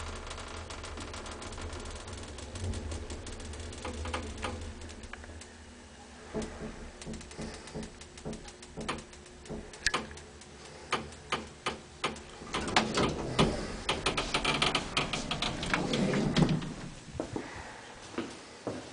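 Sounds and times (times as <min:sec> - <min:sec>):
elevator clicking: 0:00.0 - 0:17.1
elevator door rattling: 0:00.0 - 0:17.1.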